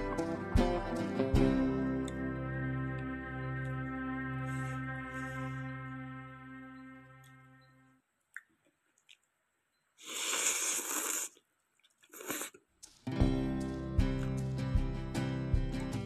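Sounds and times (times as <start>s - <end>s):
background music: 0.0s - 8.0s, 12.9s - 16.0s
person slurping noodles: 10.0s - 11.4s, 12.0s - 12.6s.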